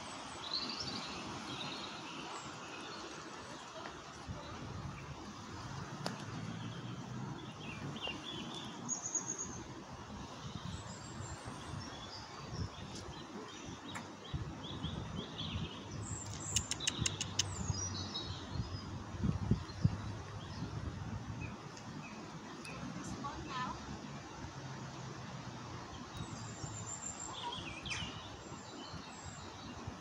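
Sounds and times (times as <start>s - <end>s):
small birds chirping: 6.1s - 9.7s, 10.5s - 20.8s
sharp clicks: 16.3s - 17.5s.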